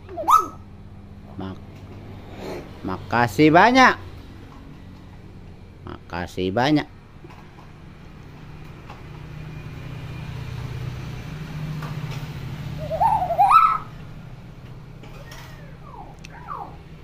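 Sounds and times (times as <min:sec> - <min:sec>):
myna bird calling: 0:00.1 - 0:00.7, 0:12.7 - 0:14.0, 0:15.6 - 0:16.9.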